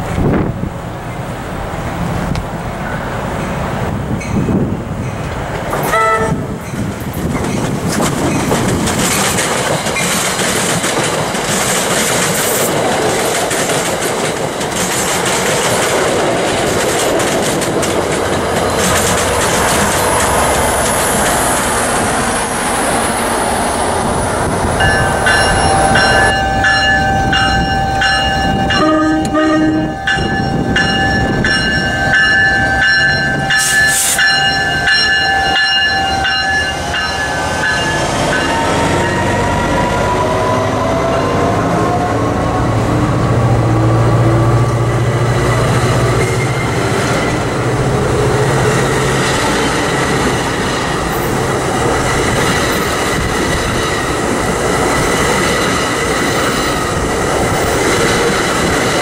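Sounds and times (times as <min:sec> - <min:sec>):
locomotive running past: 0:00.0 - 0:59.0
train wheels rumbling on rail: 0:00.0 - 0:59.0
locomotive horn blasts: 0:05.9 - 0:06.6, 0:25.6 - 0:31.0.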